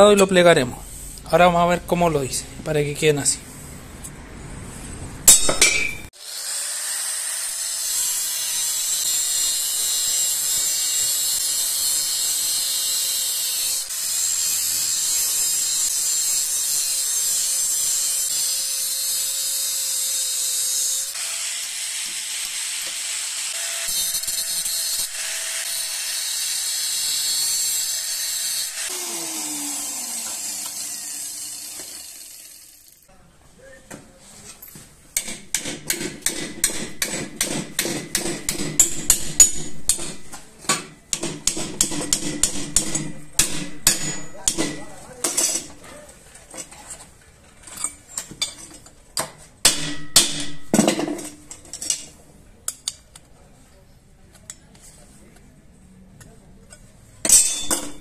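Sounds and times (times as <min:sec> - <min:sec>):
angle grinder cutting steel: 0:05.8 - 0:33.1
grinder motor winding down: 0:28.7 - 0:33.0.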